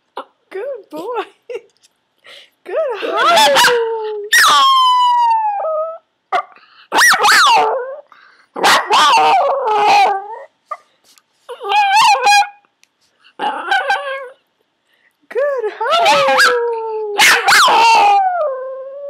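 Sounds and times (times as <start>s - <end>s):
dog howling: 3.0s - 6.0s, 7.0s - 8.1s, 8.8s - 10.5s, 11.5s - 12.6s, 13.4s - 14.4s, 15.9s - 19.0s.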